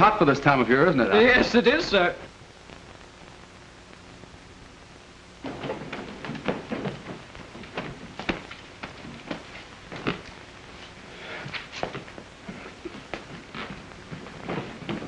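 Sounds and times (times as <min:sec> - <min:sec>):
film soundtrack hiss: 0:00.0 - 0:15.0
rustles and light knocks: 0:05.4 - 0:15.0.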